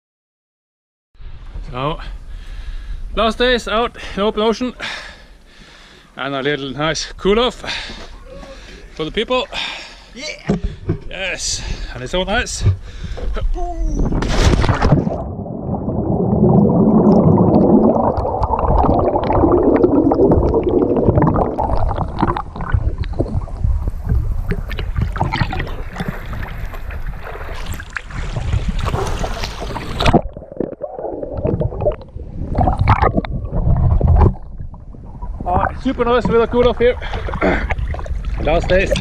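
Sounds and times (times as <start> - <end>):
sea splashing against camera: 14.0 - 39.0
underwater bubbles churning: 14.5 - 39.0.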